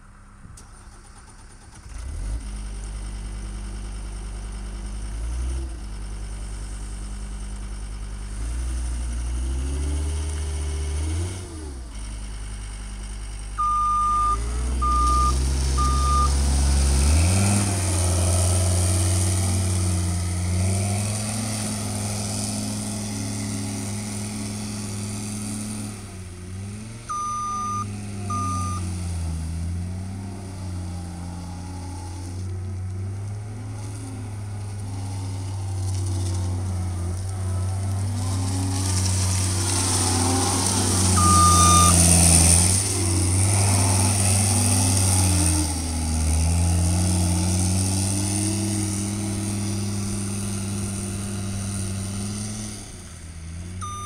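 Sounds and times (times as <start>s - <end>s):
diesel engine revving: 0.8s - 54.0s
backup alarm beeping: 13.6s - 16.4s, 27.1s - 28.8s, 41.2s - 42.0s.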